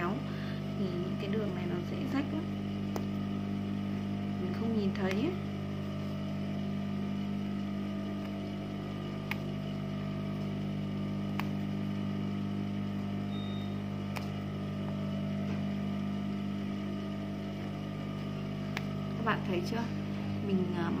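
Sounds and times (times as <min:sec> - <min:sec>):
sewing machine motor hum: 0:00.0 - 0:21.0
faint sharp thread clicks: 0:02.9 - 0:03.2, 0:11.3 - 0:11.6, 0:18.7 - 0:19.0.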